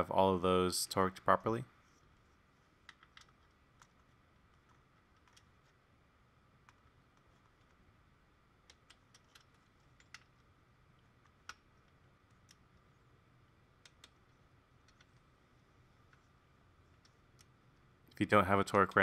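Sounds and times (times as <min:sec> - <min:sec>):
small clicks and taps of parts: 0:02.8 - 0:05.8, 0:06.6 - 0:07.8, 0:08.6 - 0:13.0, 0:13.8 - 0:15.3, 0:16.0 - 0:19.0.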